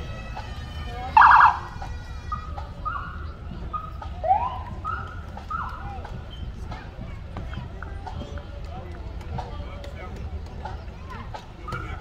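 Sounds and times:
police siren blips and whoops: 1.2s - 1.7s.

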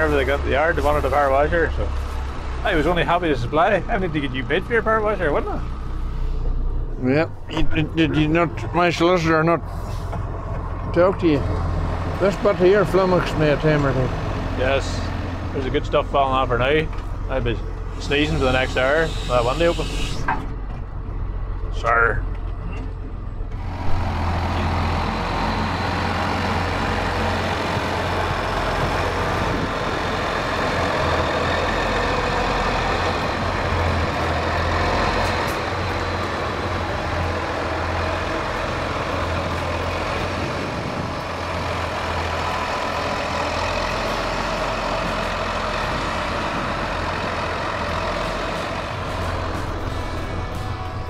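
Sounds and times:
tractor diesel engine running: 0.0s - 51.0s.

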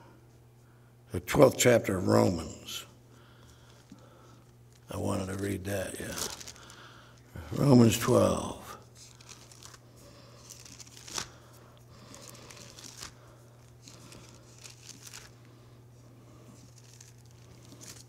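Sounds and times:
steady low hum: 0.0s - 18.0s
thin pages turning and rustling: 4.7s - 6.8s, 8.9s - 15.5s, 16.5s - 18.0s.

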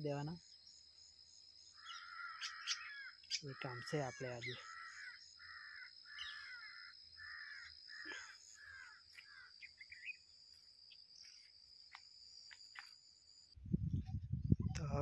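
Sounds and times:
high insect drone: 0.0s - 13.6s
crows cawing: 1.7s - 10.1s.

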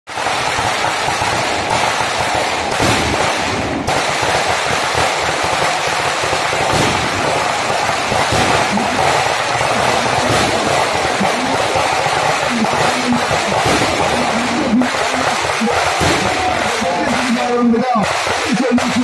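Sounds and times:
fireworks crackling and hissing: 0.1s - 19.0s.

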